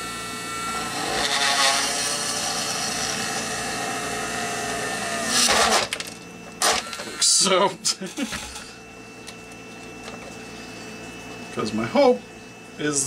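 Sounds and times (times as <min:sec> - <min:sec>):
rotary tool drilling plastic: 0:00.6 - 0:07.3
rotary tool grinding burst: 0:00.6 - 0:07.3.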